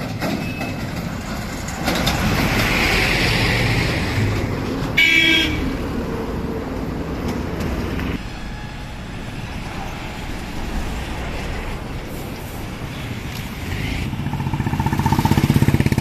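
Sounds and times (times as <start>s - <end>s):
truck rolling past: 0.0s - 16.0s
vehicle horn toot: 5.0s - 5.7s.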